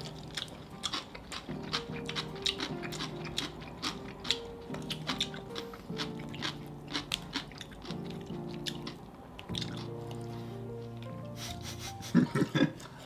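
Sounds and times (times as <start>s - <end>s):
crunchy chicken being chewed: 0.0s - 10.3s
soft background music: 0.0s - 13.0s.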